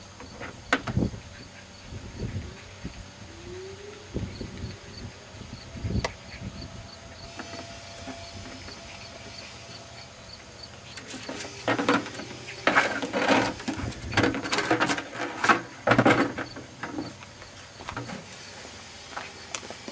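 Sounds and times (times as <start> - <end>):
plastic bucket scraping over concrete: 11.0 - 17.2.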